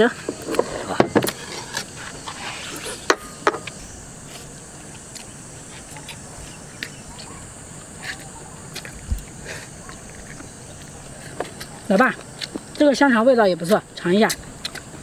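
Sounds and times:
chewing and sucking: 3.7s - 12.8s, 13.7s - 15.0s.

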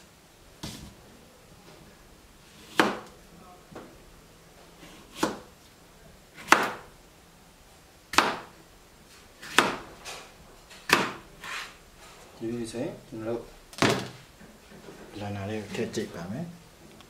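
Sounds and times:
knife slicing cucumber: 4.8s - 5.5s.

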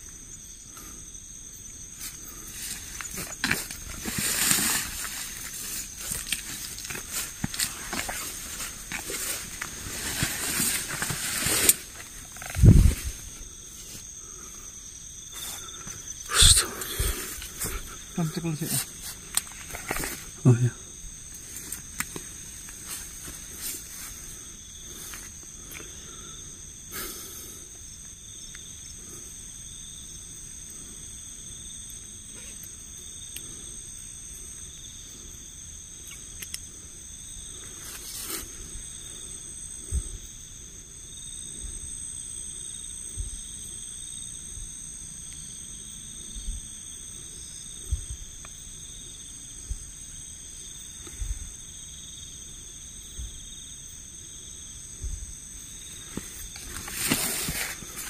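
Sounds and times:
night insects trilling: 0.0s - 58.0s
low thumps in undergrowth: 1.9s - 14.2s.

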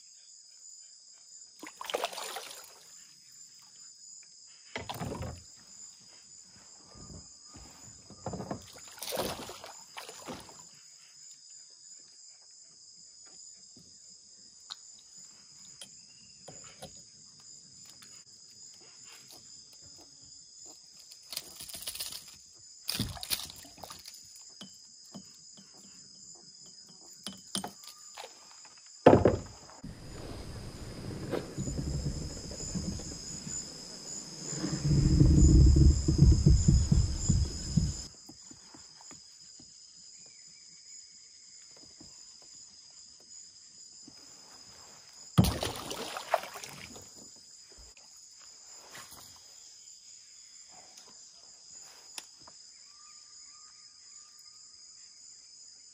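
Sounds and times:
insect chorus: 0.0s - 55.9s
knocks and handling noises: 29.1s - 30.5s.

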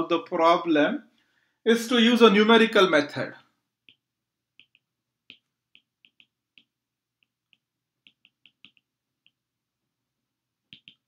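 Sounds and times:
stylus tapping on glass screen: 3.8s - 9.4s, 10.7s - 11.0s.

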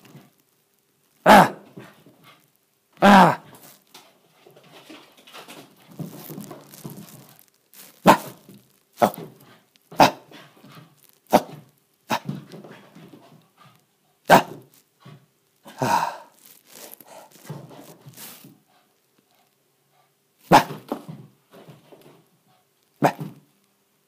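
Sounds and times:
dog play barks: 1.2s - 1.9s, 8.0s - 13.1s, 14.3s - 14.7s, 20.5s - 21.0s, 23.0s - 23.4s.

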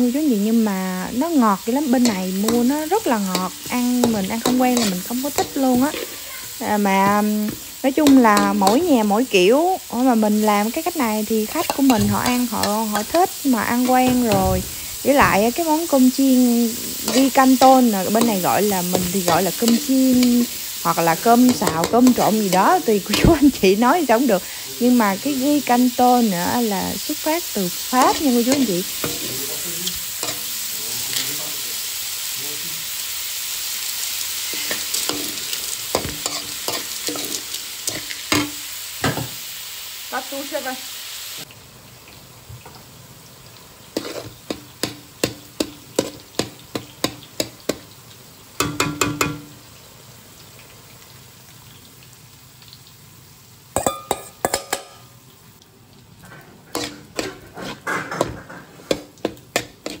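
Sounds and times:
food sizzling in a wok: 0.0s - 60.0s
metal spoon scraping a wok: 3.4s - 7.2s, 16.7s - 22.2s, 28.0s - 31.2s, 34.5s - 38.6s, 44.0s - 45.0s, 56.7s - 60.0s.

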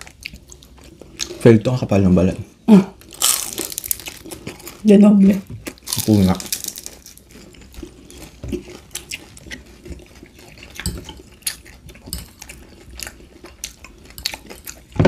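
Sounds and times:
wet chewing: 3.0s - 15.0s
forks tapping on plate: 12.1s - 12.6s.

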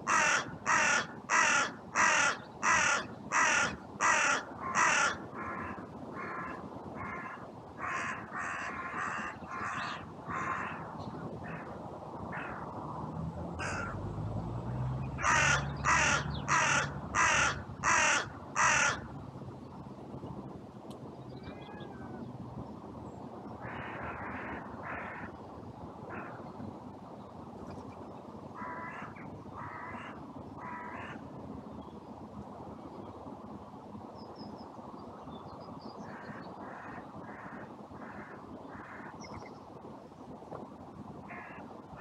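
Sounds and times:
crow cawing: 0.0s - 11.7s, 13.6s - 14.0s, 15.2s - 19.1s, 23.6s - 25.3s, 26.1s - 26.4s, 28.6s - 31.2s, 36.1s - 39.2s, 41.3s - 41.6s.

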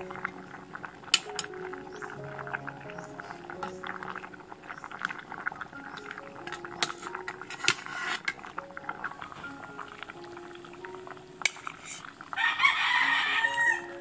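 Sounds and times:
soft background music: 0.0s - 14.0s
water boiling in a pot: 0.0s - 14.0s
metal ladle clinking against pot: 1.1s - 1.5s, 6.5s - 8.4s, 11.4s - 12.0s.

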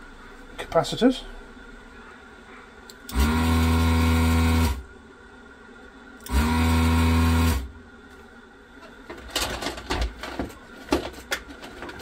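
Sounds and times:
vacuum pump motor hum: 3.0s - 5.0s, 6.2s - 8.0s.

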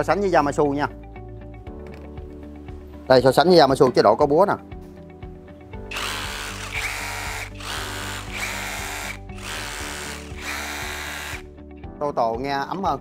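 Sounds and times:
rotary hammer drilling: 5.9s - 11.5s.

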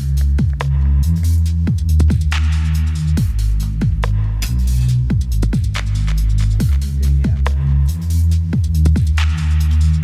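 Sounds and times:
punchy kick drums: 0.0s - 0.8s, 1.6s - 2.5s, 3.2s - 4.2s, 5.1s - 6.0s
electronic dance music: 0.0s - 10.0s
heavy bass line: 0.0s - 10.0s.

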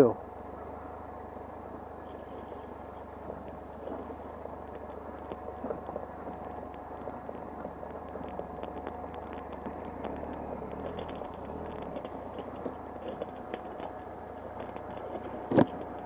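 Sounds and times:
motorcycle engine running: 0.0s - 16.0s
small clicks and knocks: 3.2s - 16.0s.

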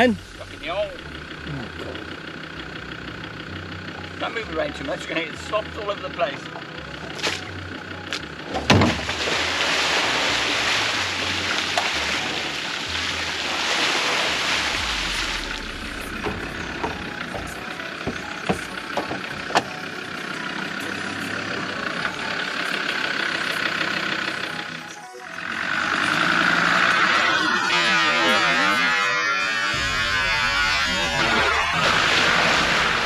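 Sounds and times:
car engine running: 0.0s - 33.0s
loud rushing noise: 9.2s - 17.3s.

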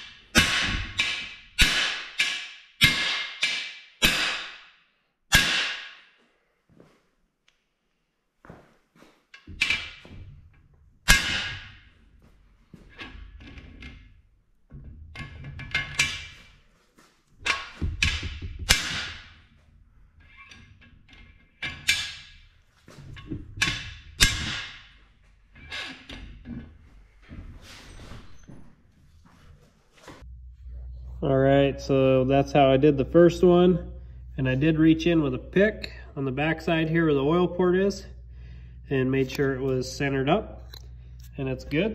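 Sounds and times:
hammer striking metal bar: 0.0s - 4.7s, 5.3s - 6.1s, 11.1s - 11.8s, 17.5s - 19.4s, 23.6s - 24.9s.

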